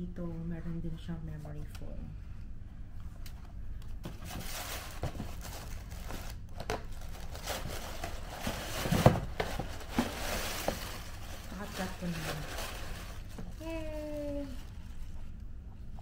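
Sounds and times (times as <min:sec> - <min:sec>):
packaging crinkling: 0:04.2 - 0:15.5.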